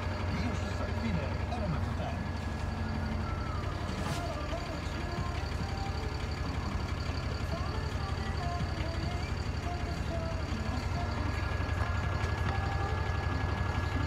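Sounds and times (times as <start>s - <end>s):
diesel truck engine idling: 0.0s - 14.0s
faint high-pitched tone: 2.8s - 4.9s.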